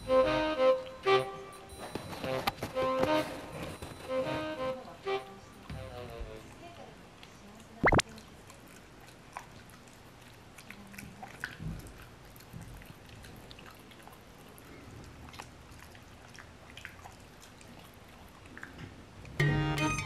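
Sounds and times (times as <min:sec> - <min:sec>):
dog chewing: 0:05.6 - 0:19.3.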